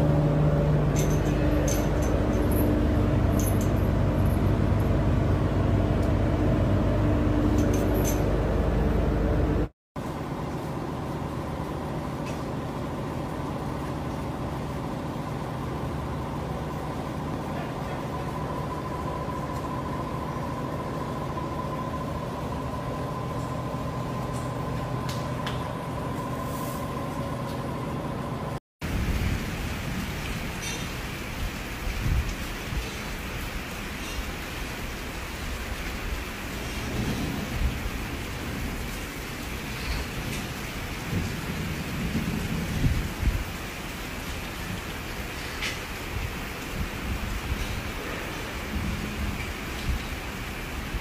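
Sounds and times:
machinery droning: 0.0s - 30.6s
mechanical hum: 0.0s - 51.0s.

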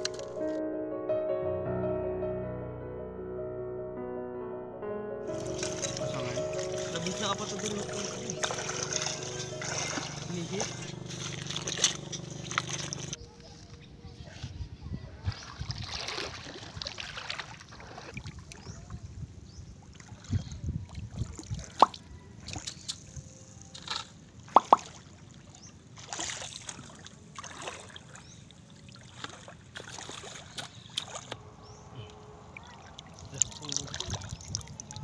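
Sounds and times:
sharp water plops: 5.3s - 13.2s, 21.3s - 22.8s, 24.5s - 25.2s, 28.9s - 31.4s
water splashing around feet: 5.3s - 13.2s, 15.2s - 18.9s, 19.8s - 35.0s.

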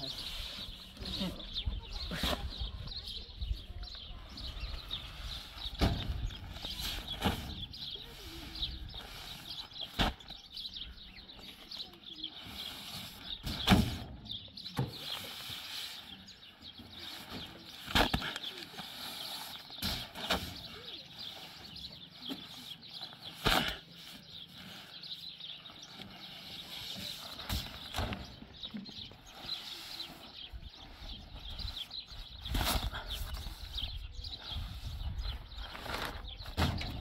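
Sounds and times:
birds chirping: 0.0s - 37.0s.

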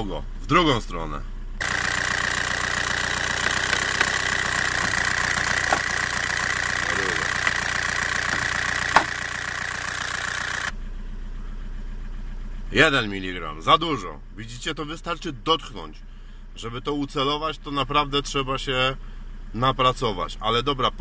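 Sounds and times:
diesel engine idling with clatter: 0.0s - 21.0s
sharp clicks: 1.6s - 9.4s.

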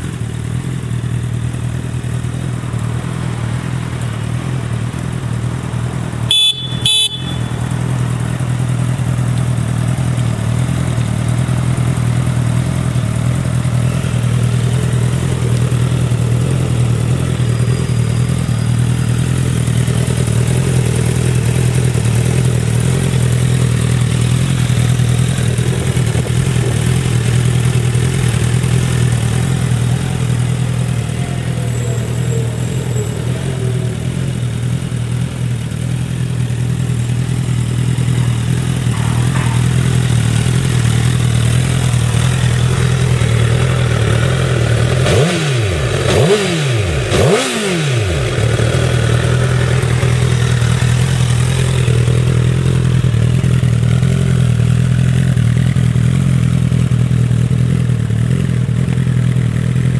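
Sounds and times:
motorcycle engine idling and revving: 0.0s - 59.9s.

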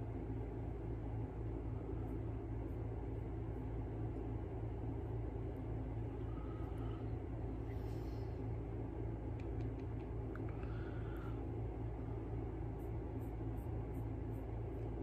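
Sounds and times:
low background hum: 0.0s - 15.0s
faint light clicks: 9.3s - 10.6s.

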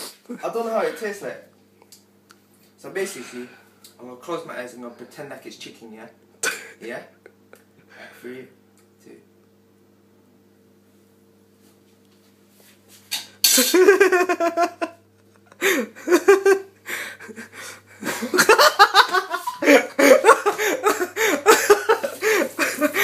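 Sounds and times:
young men laughing hard: 13.7s - 23.0s.

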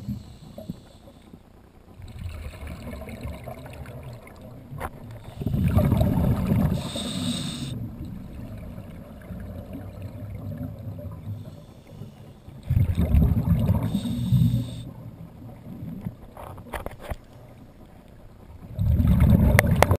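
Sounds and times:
regulator hiss: 0.0s - 1.4s, 5.2s - 7.9s, 11.2s - 12.6s, 13.7s - 15.1s
bubbling exhaled air underwater: 2.0s - 16.1s, 18.6s - 19.9s.

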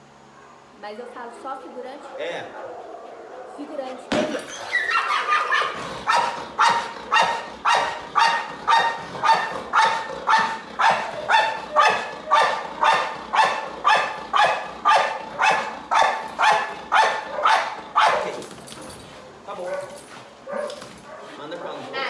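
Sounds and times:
dog barking: 4.7s - 22.0s.

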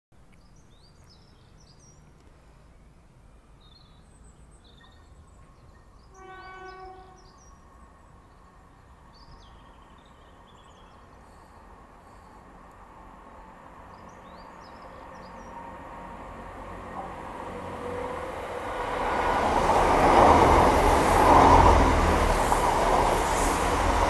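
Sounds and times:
birds chirping: 3.6s - 24.0s
distant train horn blast: 6.1s - 7.4s.

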